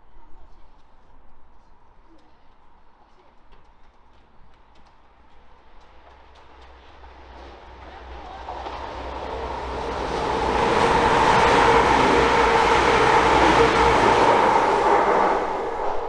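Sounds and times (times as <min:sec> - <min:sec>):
train passing at speed: 0:05.6 - 0:16.0.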